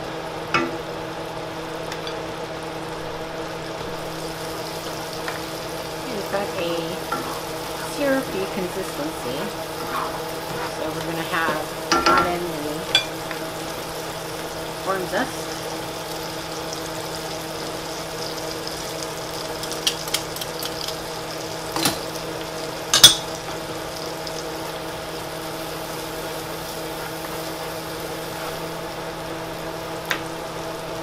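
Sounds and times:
steady hum: 0.0 - 19.7
sauce bubbling in a skillet: 0.1 - 31.0.

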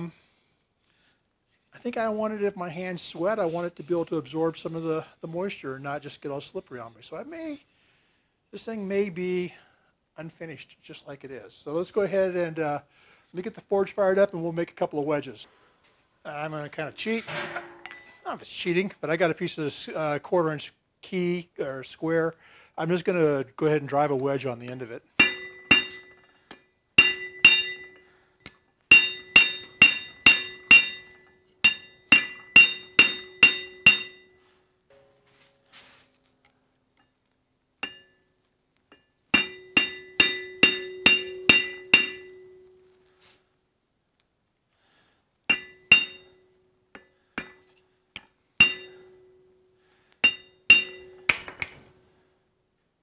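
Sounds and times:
hammer striking steel on anvil: 17.4 - 18.2, 25.2 - 35.2, 37.8 - 38.2, 38.9 - 43.0, 45.5 - 52.4.

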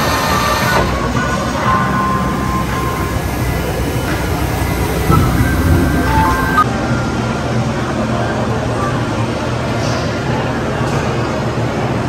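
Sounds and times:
vending machine whirring: 0.0 - 7.1.

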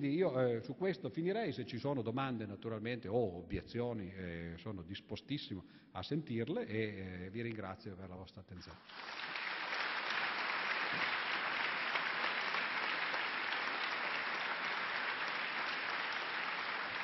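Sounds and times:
audience applauding: 8.8 - 17.0.

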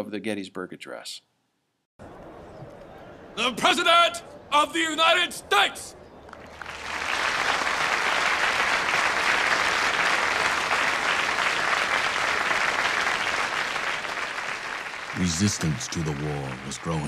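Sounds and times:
crowd applauding: 6.3 - 17.0.

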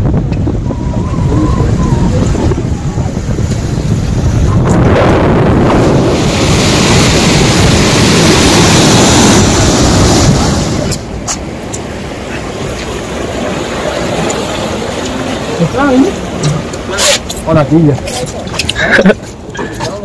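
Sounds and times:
boat engine rumble: 0.0 - 20.0
water rushing along hull: 0.0 - 20.0
wind buffeting microphone: 0.0 - 20.0
foaming wake hissing: 5.6 - 11.1.

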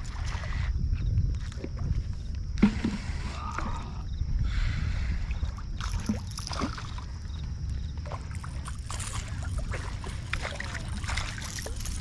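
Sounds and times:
wind rumble: 0.0 - 12.0
water sloshing: 5.4 - 12.0.

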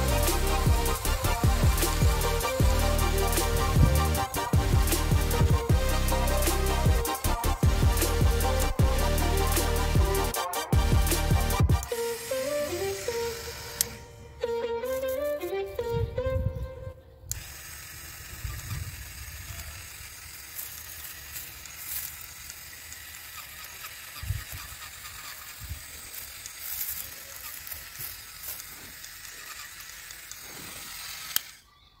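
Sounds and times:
small electric motor running: 0.0 - 14.4, 17.3 - 31.7
blade scraping against twigs: 17.3 - 31.7.

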